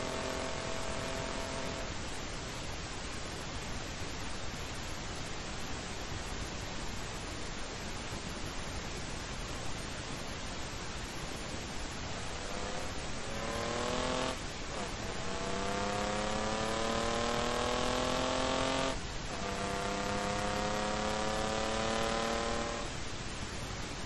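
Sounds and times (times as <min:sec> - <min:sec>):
car engine accelerating: 0:00.0 - 0:02.0, 0:12.1 - 0:23.0
wind and road noise: 0:00.0 - 0:24.0.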